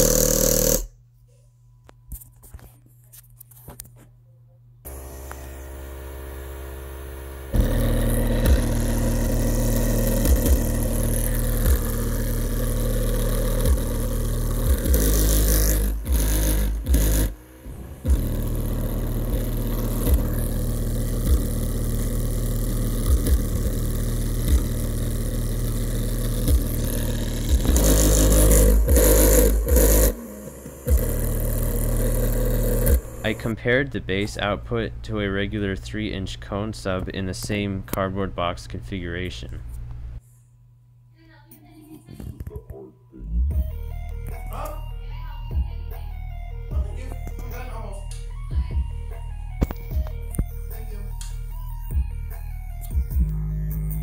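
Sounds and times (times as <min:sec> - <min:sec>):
small motor humming: 0:00.0 - 0:00.9, 0:04.9 - 0:33.5
deep bass thumps: 0:07.6 - 0:30.2, 0:30.8 - 0:33.5, 0:45.5 - 0:46.0, 0:46.7 - 0:47.5, 0:48.5 - 0:50.8, 0:51.8 - 0:54.0.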